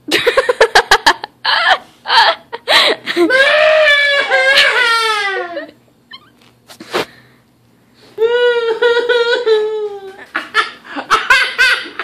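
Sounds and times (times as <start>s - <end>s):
person wailing cry: 3.1s - 5.7s, 8.2s - 10.3s.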